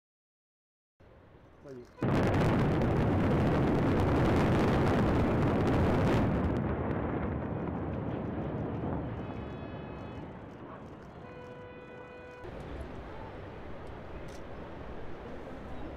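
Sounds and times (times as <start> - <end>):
rumble of collapsing concrete: 2.0 - 9.5.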